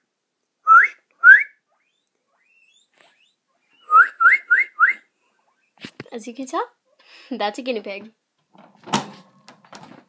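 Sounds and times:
guinea pig squealing: 1.6s - 4.0s, 5.3s - 5.9s, 6.8s - 7.0s.

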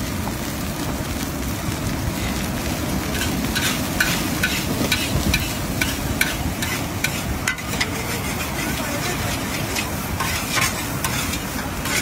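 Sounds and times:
rice sizzling: 0.0s - 12.0s
metal spatula knocking on wok: 3.2s - 8.0s.

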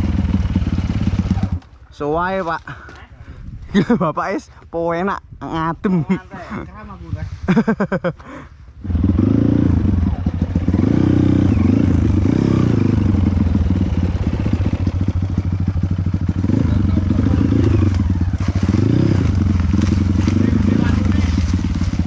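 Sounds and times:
dirt bike engine revving: 0.0s - 1.6s, 8.8s - 22.0s.

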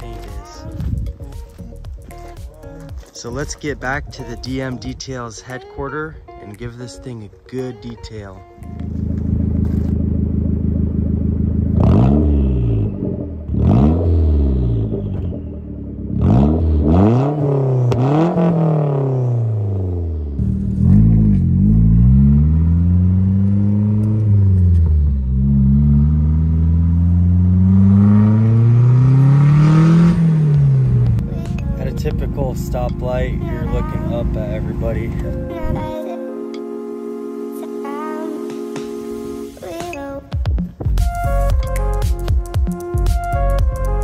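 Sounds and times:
car engine revving: 8.7s - 35.9s.

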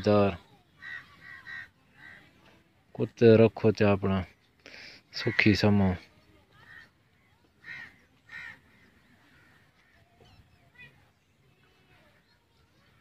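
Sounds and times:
bird calls: 0.8s - 2.5s, 6.6s - 11.2s
faint bird chirps: 6.5s - 13.0s.

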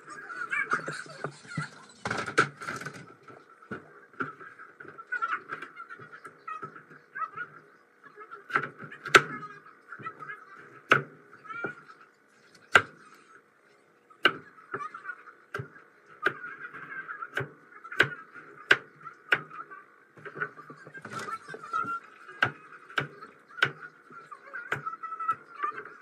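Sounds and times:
faint background sound: 0.0s - 26.0s
knife chopping on plastic board: 12.7s - 13.0s, 17.3s - 19.6s, 20.2s - 23.8s.

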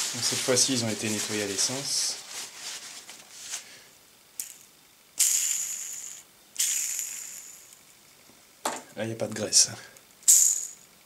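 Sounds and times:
paper towel rustling: 0.0s - 3.8s
ball bearing spinning rattling whir: 4.4s - 7.9s, 10.3s - 11.0s.

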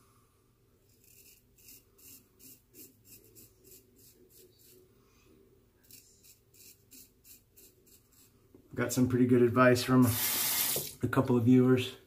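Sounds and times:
razor scraping through lather: 1.0s - 4.8s, 5.8s - 8.3s, 10.1s - 10.9s.

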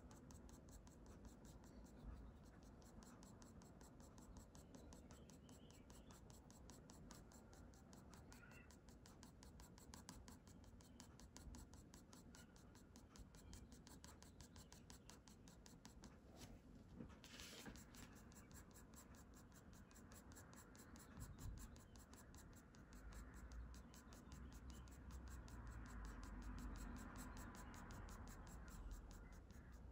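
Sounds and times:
pencil scratching on paper: 0.0s - 16.2s, 17.2s - 29.9s.

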